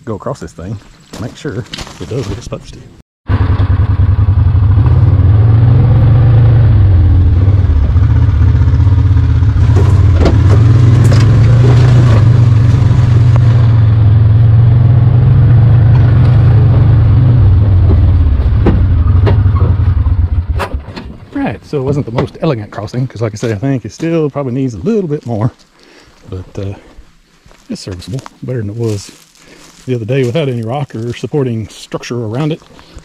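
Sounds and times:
utility vehicle engine running: 3.3 - 22.5
knocks and rattles: 9.6 - 12.9, 17.2 - 22.4.

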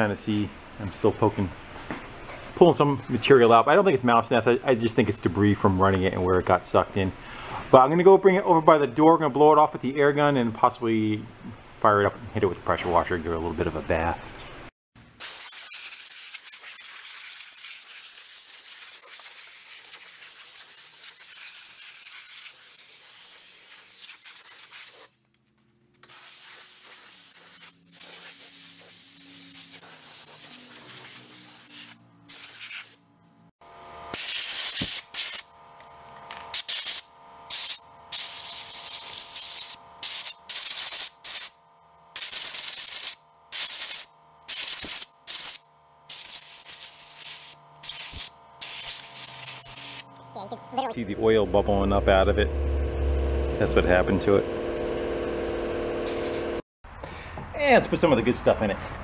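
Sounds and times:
compressed air blow gun hissing: 15.2 - 25.1, 26.1 - 33.0
short air blasts: 26.1 - 33.0, 34.1 - 35.4.

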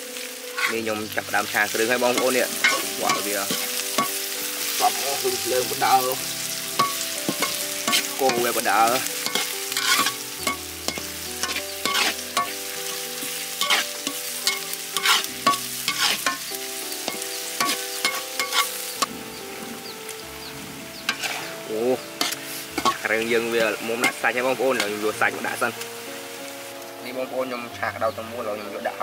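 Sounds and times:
food sizzling in oil: 0.0 - 29.0
utensil scraping pan: 0.5 - 0.9, 2.1 - 4.2, 6.8 - 12.6, 13.2 - 16.5, 17.1 - 18.7, 21.1 - 21.6, 22.2 - 25.0.

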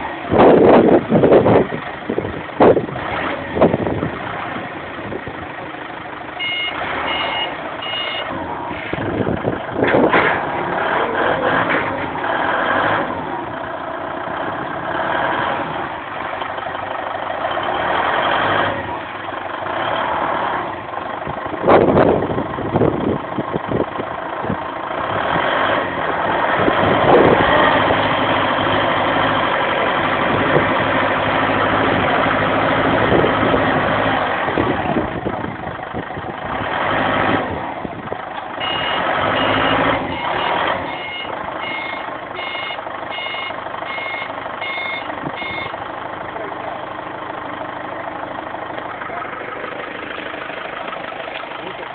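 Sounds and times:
forklift engine running: 0.0 - 51.9
reversing alarm beeping: 6.4 - 8.3, 38.6 - 45.8.

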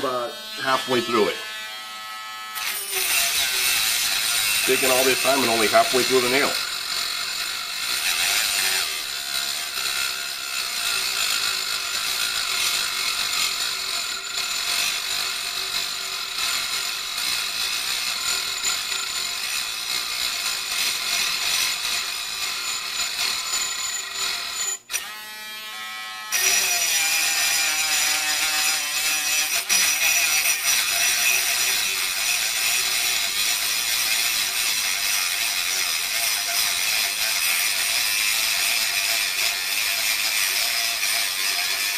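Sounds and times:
rotary tool grinding metal: 0.0 - 41.9.

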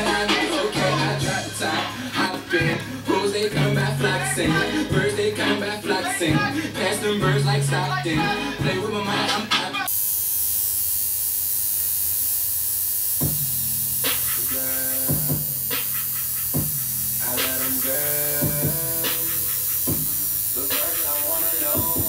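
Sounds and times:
tattoo machine buzzing: 9.9 - 22.0.

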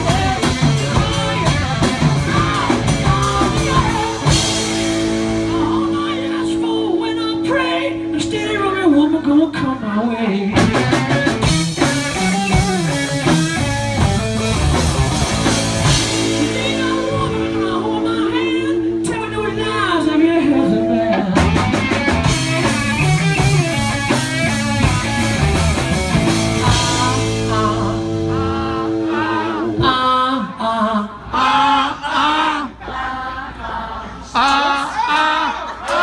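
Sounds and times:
drum kit: 0.0 - 9.0, 10.5 - 30.0
person singing: 0.0 - 13.4, 15.8 - 32.7
electric guitar: 0.0 - 30.6.

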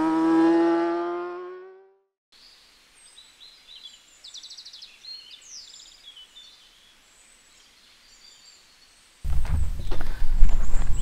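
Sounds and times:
light outdoor hiss: 2.4 - 11.0
songbird chirps and trills: 2.4 - 11.0.

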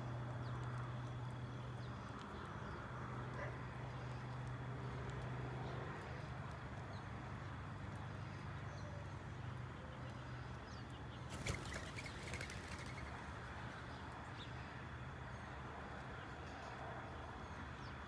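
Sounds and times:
birds wing flaps: 11.3 - 13.5.

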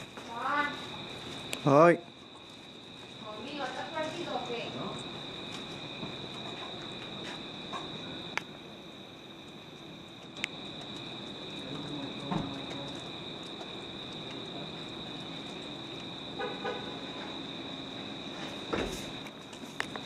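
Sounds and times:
crickets chirping: 0.0 - 20.0.

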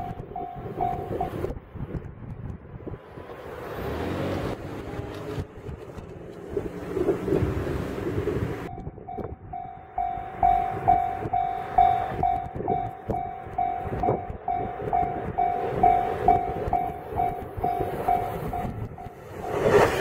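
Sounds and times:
level crossing alarm ringing: 0.0 - 1.4, 8.7 - 19.2.

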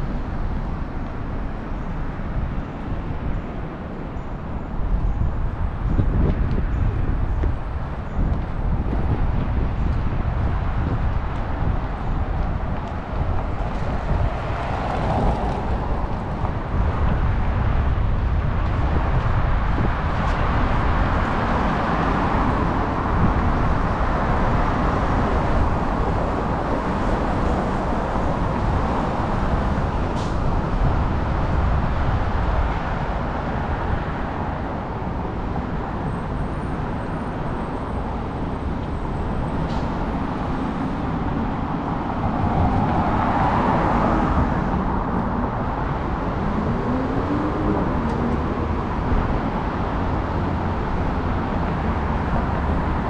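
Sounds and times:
road traffic: 0.0 - 53.0
loud vehicle passing: 12.4 - 34.6, 37.2 - 53.0.

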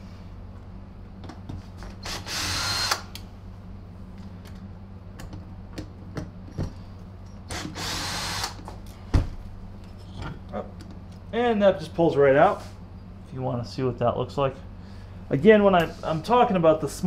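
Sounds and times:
cordless drill spinning: 2.0 - 3.0, 7.5 - 8.6.

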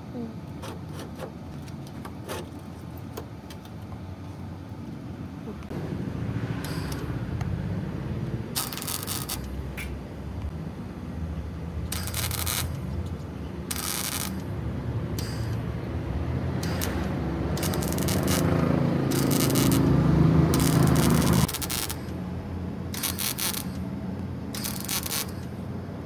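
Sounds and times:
low buzzing hum: 4.1 - 26.0
crackling welding arc: 5.7 - 7.2, 8.4 - 10.0, 11.8 - 22.2, 22.8 - 23.9, 24.5 - 25.6.

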